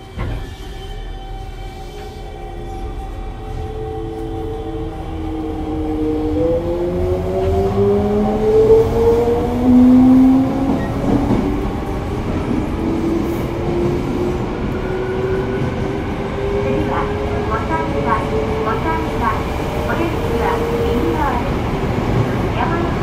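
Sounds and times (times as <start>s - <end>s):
train running gear rumble: 7.3s - 23.0s.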